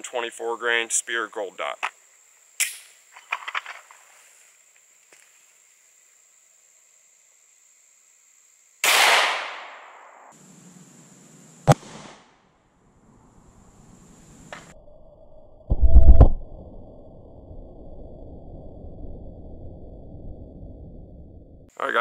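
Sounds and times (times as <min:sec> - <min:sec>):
pistol shot with echo: 0:08.8 - 0:10.2.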